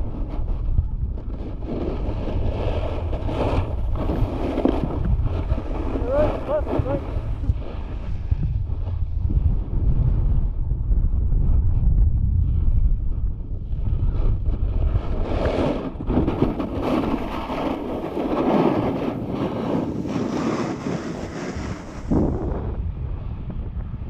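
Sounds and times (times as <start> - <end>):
snowboard edge scraping snow: 0.0 - 9.7, 14.0 - 22.8
wind buffeting microphone: 0.0 - 24.0.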